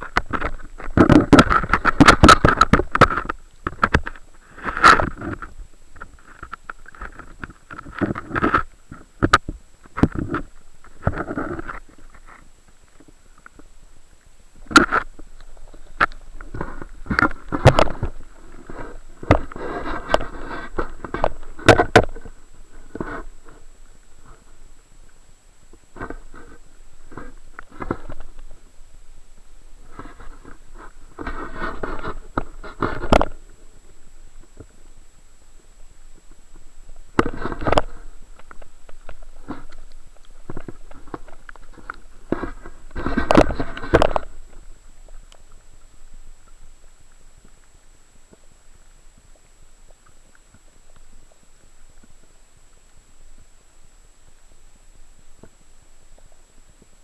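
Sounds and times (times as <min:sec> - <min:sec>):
underwater knocks and thumps: 0:00.0 - 0:12.4, 0:14.6 - 0:23.6, 0:29.9 - 0:33.4, 0:36.9 - 0:45.4
muffled underwater sloshing: 0:00.0 - 0:57.0.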